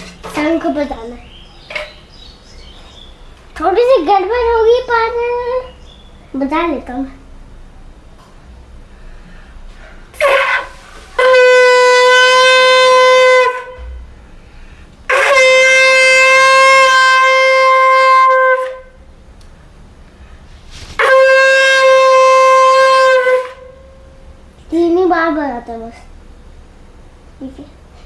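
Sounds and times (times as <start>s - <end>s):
conch shell blasts: 9.8s - 14.5s, 15.1s - 19.2s, 20.8s - 24.4s.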